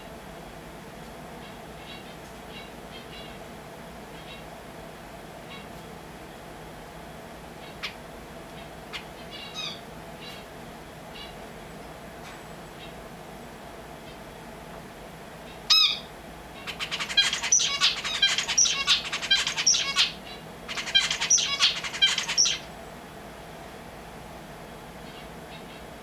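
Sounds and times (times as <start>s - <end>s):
finch singing: 1.4s - 3.4s, 8.6s - 10.5s, 15.5s - 22.7s.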